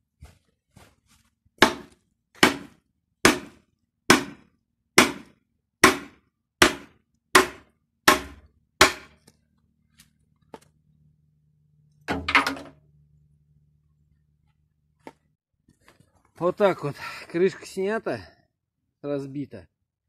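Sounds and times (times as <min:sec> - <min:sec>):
sledgehammer striking metal: 0:01.6 - 0:09.2.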